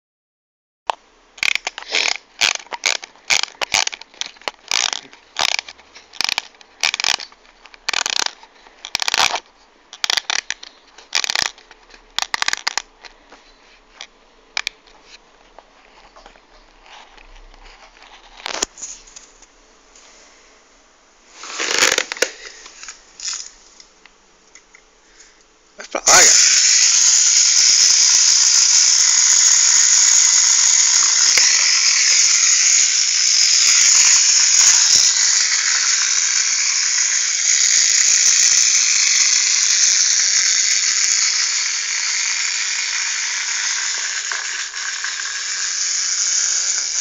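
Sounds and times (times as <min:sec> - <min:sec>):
scraping and crinkling: 0:01.4 - 0:20.1, 0:21.3 - 0:23.9.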